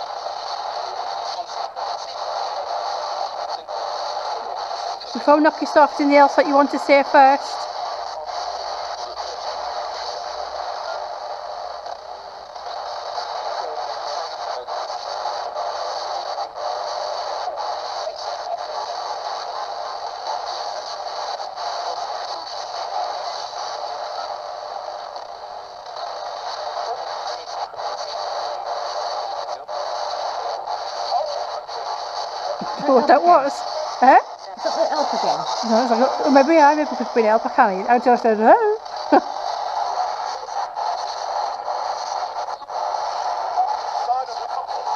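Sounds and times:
radio static hiss: 0:00.0 - 0:44.9.

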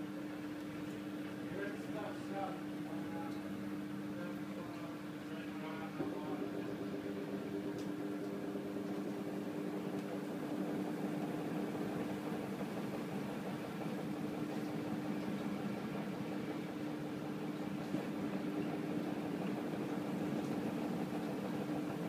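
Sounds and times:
washing machine spinning: 0:00.0 - 0:22.0.

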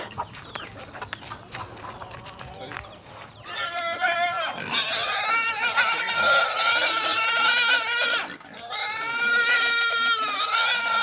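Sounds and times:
pig squealing: 0:03.4 - 0:11.0.

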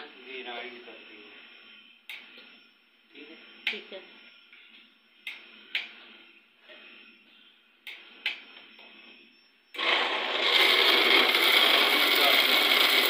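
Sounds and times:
blender motor whirring: 0:09.8 - 0:13.0.

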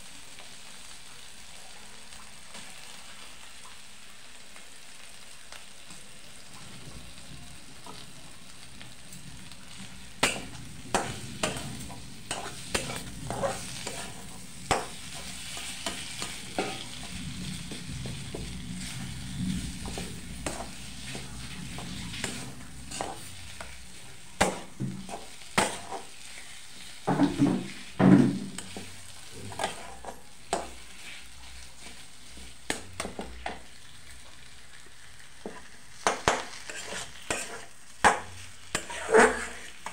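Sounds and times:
food sizzling: 0:00.0 - 0:39.9
metal spatula scraping a pan: 0:10.2 - 0:33.6, 0:35.5 - 0:39.9.

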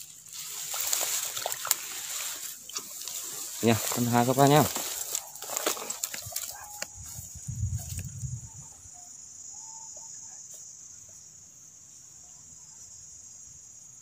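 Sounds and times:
handling bumps and rustling: 0:00.0 - 0:08.2
insects trilling: 0:00.0 - 0:14.0.

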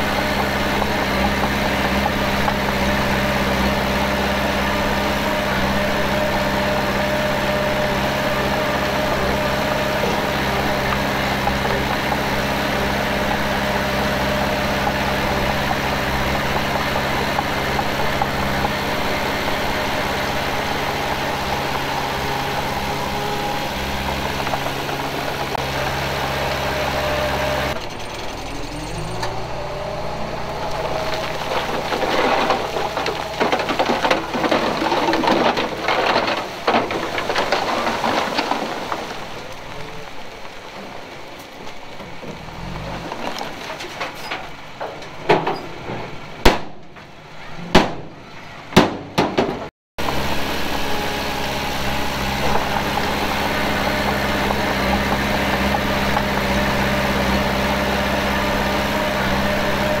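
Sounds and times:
rattling and clanking: 0:00.0 - 0:39.9, 0:42.0 - 1:00.0
heavy machinery diesel engine: 0:00.0 - 1:00.0
sharp loud bangs: 0:46.4 - 0:47.0, 0:47.6 - 0:49.7.

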